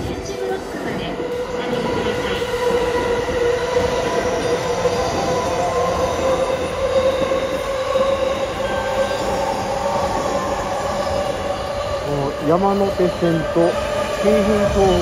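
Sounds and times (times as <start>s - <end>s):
electric train whine: 0.0s - 15.0s
train wheels rumbling: 0.0s - 15.0s.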